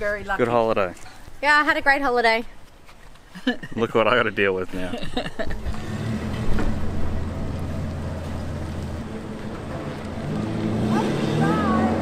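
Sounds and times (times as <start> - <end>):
vehicle engine driving away: 5.4 - 12.0
thump: 6.3 - 6.9.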